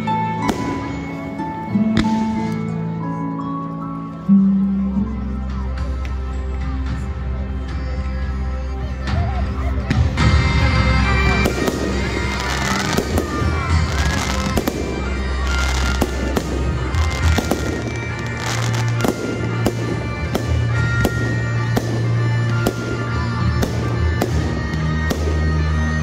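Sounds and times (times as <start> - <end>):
music playing: 0.0 - 26.0
fireworks bursting: 0.4 - 2.8, 10.2 - 26.0.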